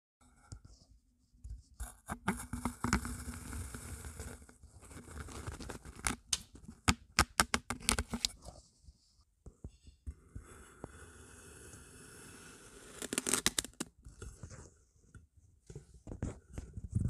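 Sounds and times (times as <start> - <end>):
knife cutting through kinetic sand: 10.4 - 13.9.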